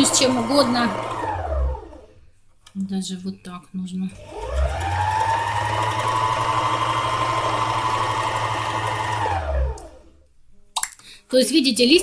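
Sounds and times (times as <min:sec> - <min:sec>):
needle-felting machine running: 0:00.0 - 0:02.0, 0:04.1 - 0:10.1.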